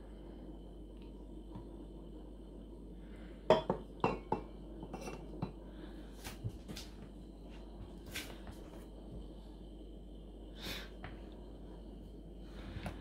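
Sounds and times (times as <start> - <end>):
steel mug clinking: 3.5 - 5.5.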